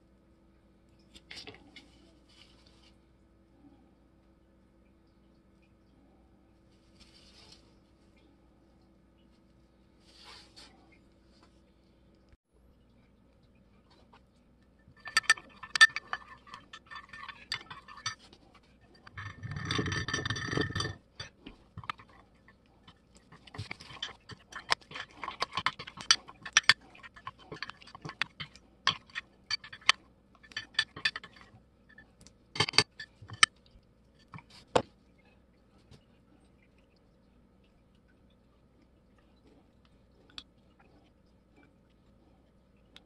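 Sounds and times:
metal clinking on glass: 15.0s - 18.3s, 18.9s - 22.2s
metal spoon scraping plaster: 15.0s - 33.5s.

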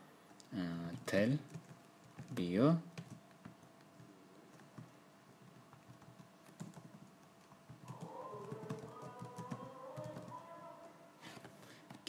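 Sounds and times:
typing on a keyboard: 0.9s - 10.4s.

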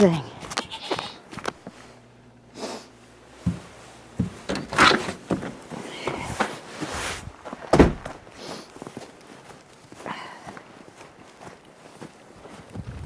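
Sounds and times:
footsteps crunching through wet snow: 6.4s - 13.0s.

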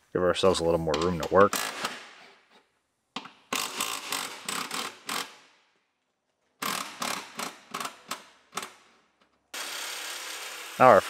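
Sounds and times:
impact wrench rattling: 3.2s - 5.6s, 6.6s - 9.0s.

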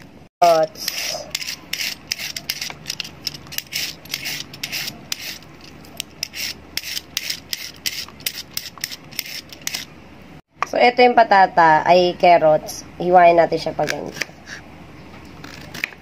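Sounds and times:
peeler scraping carrot: 0.4s - 9.9s, 13.8s - 16.0s.

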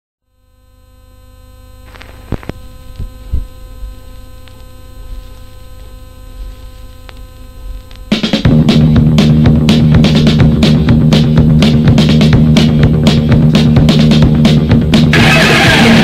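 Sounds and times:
electrical mains hum: 0.2s - 16.0s
heavy metal music: 8.2s - 16.0s.

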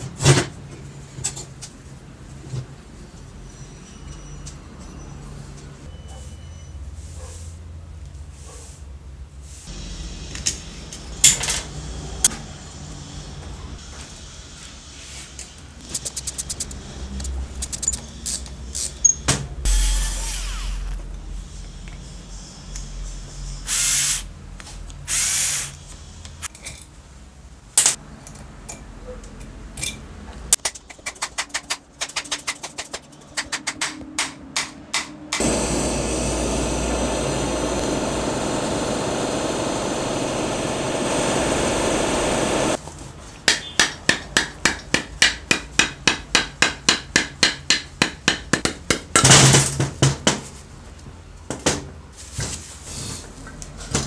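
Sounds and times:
gas torch flame hissing: 23.7s - 24.3s, 25.0s - 25.8s, 35.4s - 42.8s.

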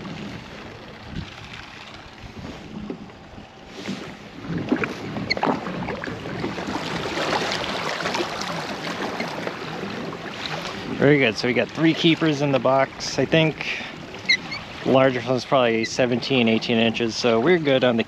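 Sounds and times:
wind on microphone: 0.0s - 11.7s
water lapping against kayak hull: 0.0s - 18.0s.

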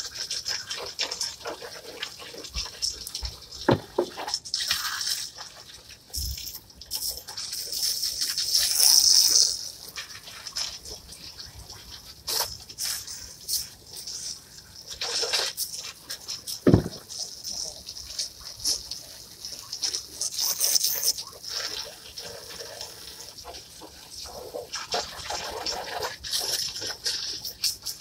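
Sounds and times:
hose nozzle spraying water: 0.0s - 11.2s, 11.9s - 23.6s
plastic chairs knocking: 3.7s - 4.1s, 16.7s - 17.0s.

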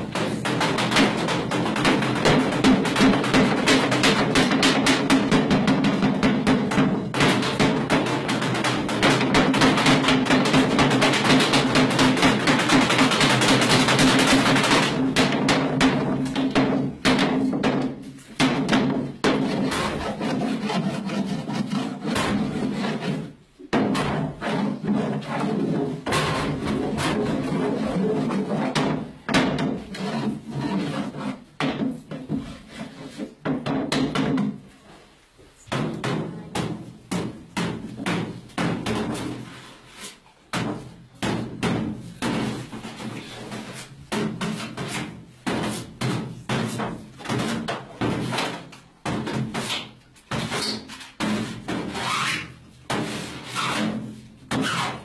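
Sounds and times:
knocks and scrapes: 0.0s - 55.0s.

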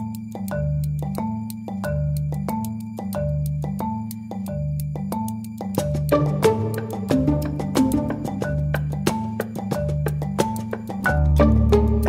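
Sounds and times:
marimba notes: 0.0s - 12.0s
pizzicato strings: 5.9s - 12.0s.

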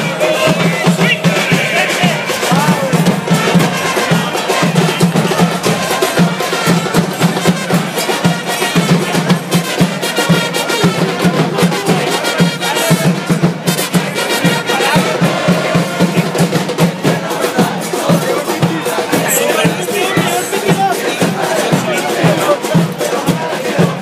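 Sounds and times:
trumpets playing: 0.0s - 16.0s
drums beating: 0.0s - 24.0s.

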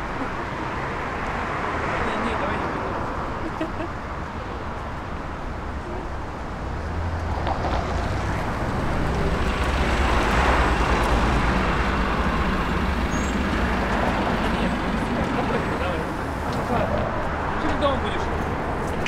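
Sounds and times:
bus engine rumble: 0.0s - 19.0s.

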